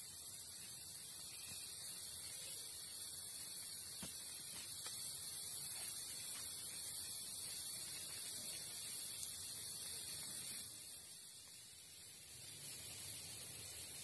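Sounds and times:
insects chorus: 0:00.0 - 0:14.0.

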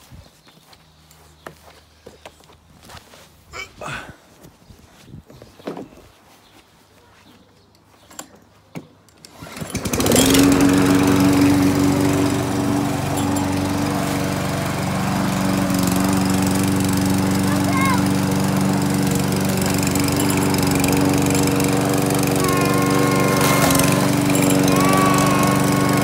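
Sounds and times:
lawnmower engine starting and running: 0:09.1 - 0:26.0.

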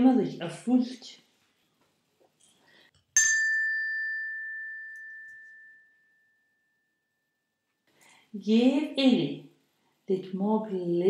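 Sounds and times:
small bell ringing: 0:03.2 - 0:07.4.

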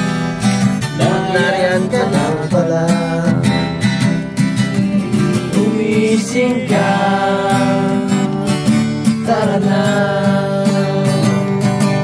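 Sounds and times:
strummed acoustic guitar: 0:00.0 - 0:12.0.

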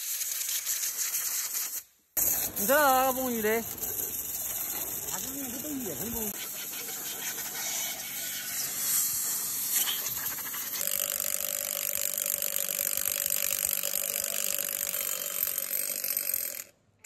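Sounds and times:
compressed air hissing: 0:01.0 - 0:10.9
impact wrench whining: 0:10.8 - 0:16.8.

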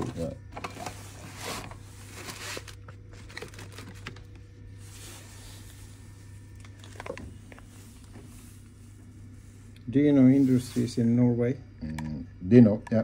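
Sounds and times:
knives and paper rustling in a box: 0:00.0 - 0:04.2
steady low hum: 0:00.0 - 0:13.0.

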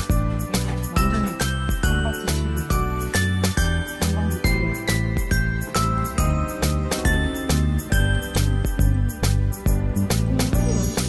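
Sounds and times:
steady beat: 0:00.0 - 0:11.0
tinkling bell-like melody: 0:00.9 - 0:09.8, 0:10.6 - 0:11.0.

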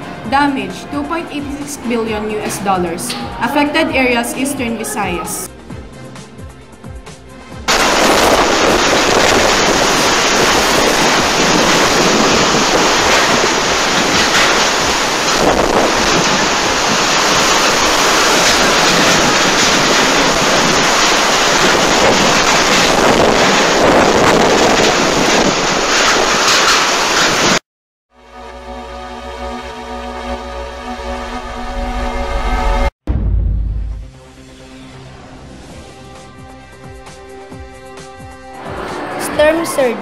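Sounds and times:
driving rain: 0:07.7 - 0:27.6
strong wind: 0:07.7 - 0:27.6
wind buffeting microphone: 0:07.8 - 0:27.6.

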